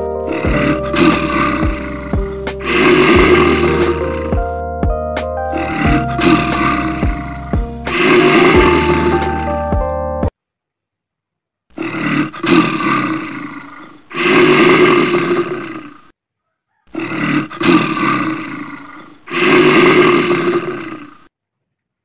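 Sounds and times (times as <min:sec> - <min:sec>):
rasping snore sound effect: 0:00.2 - 0:04.5, 0:05.5 - 0:09.6, 0:11.8 - 0:16.1, 0:16.9 - 0:21.3.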